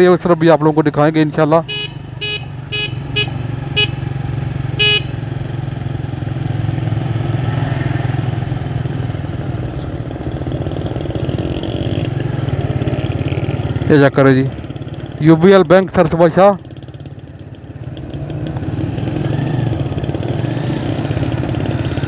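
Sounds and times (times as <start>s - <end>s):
vehicle engine running: 0.0s - 22.0s
short horn beeps: 1.6s - 4.1s, 4.8s - 5.2s.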